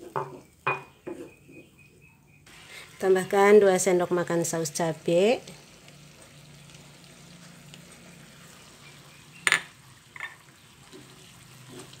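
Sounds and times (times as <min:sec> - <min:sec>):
kitchenware clink: 0:00.2 - 0:01.4, 0:09.5 - 0:10.4
sauce sizzling in a frying pan: 0:02.5 - 0:12.0.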